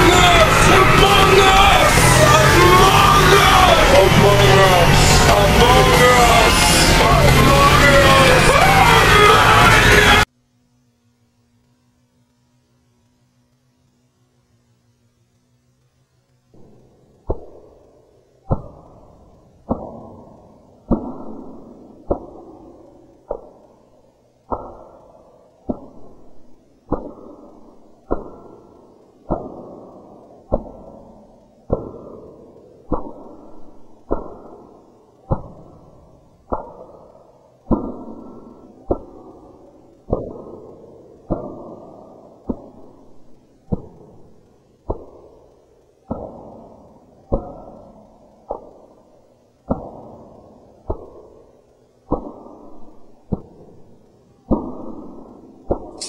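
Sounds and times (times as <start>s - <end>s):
muffled dull thuds with echo: 37.7s - 43.0s, 49.7s - 51.3s.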